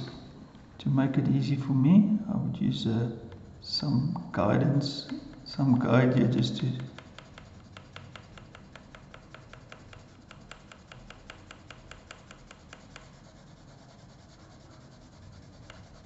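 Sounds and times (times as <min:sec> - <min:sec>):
pencil scratching on paper: 0:06.4 - 0:16.0.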